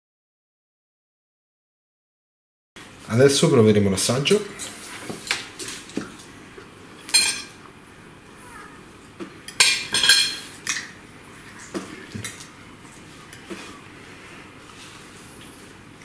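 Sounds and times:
cutlery clinking on a plate: 0:07.1 - 0:07.6, 0:09.5 - 0:10.9.

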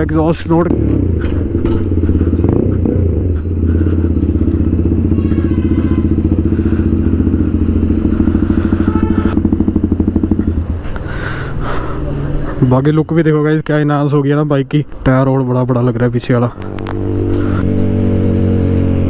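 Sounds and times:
motorcycle engine idling: 0:00.0 - 0:12.2.

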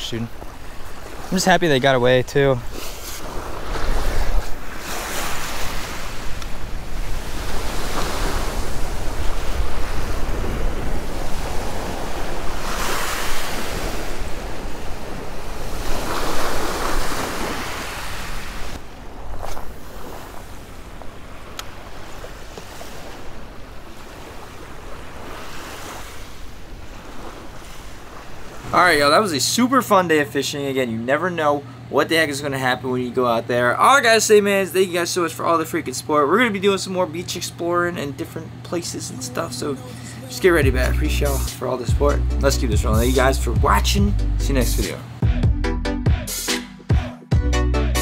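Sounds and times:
small waves washing on beach: 0:00.0 - 0:29.2
wind rumbling on microphone: 0:02.6 - 0:28.8.

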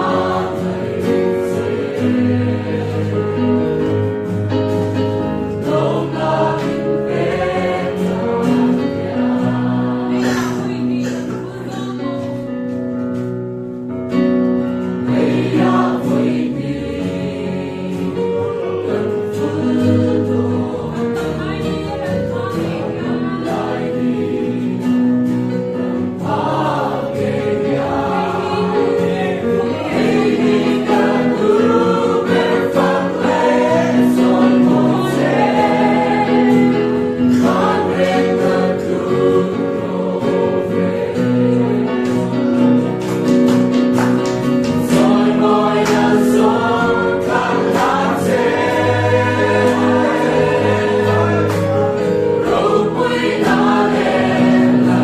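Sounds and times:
choir singing a hymn: 0:00.0 - 0:12.0, 0:14.0 - 0:55.0
sharp percussive beats: 0:42.9 - 0:55.0.

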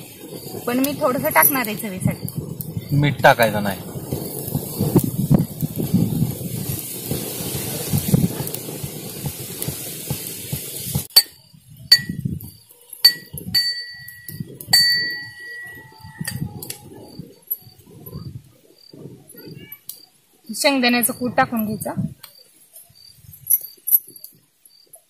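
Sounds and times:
metallic clinks: 0:11.1 - 0:18.2, 0:23.2 - 0:25.0.

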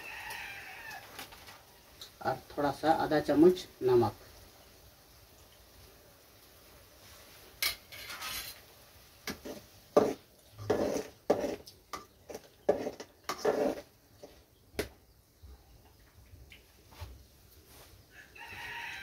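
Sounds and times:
metal spatula scraping pan: 0:07.6 - 0:08.7, 0:09.3 - 0:14.4.

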